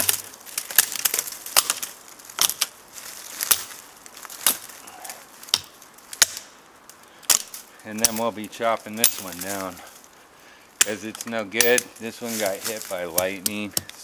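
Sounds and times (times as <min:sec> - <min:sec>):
blade chopping dead branches: 0:00.0 - 0:04.8, 0:05.4 - 0:06.6, 0:07.2 - 0:08.3, 0:10.8 - 0:14.0.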